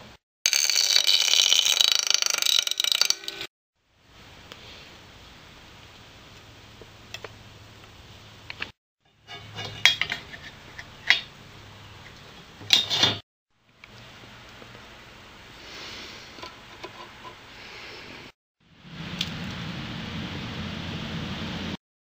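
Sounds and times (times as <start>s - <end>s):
aluminium strips clinking and rattling: 0.5s - 3.5s.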